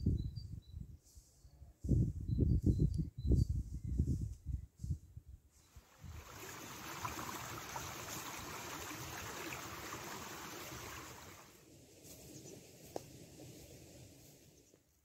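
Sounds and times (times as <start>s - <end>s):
stream flowing: 5.8s - 11.6s.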